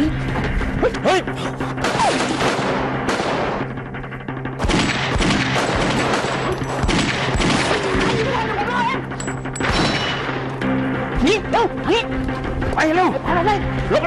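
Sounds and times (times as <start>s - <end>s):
music with low drone: 0.0s - 14.0s
gunshots: 1.8s - 3.8s, 4.6s - 8.6s, 9.6s - 10.5s.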